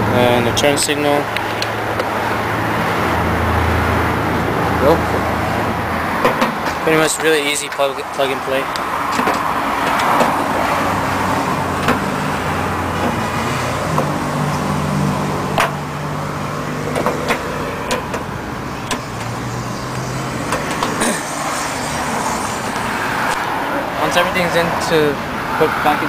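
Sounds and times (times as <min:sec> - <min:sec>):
engine hum: 0:00.0 - 0:26.0
traffic noise: 0:00.0 - 0:26.0.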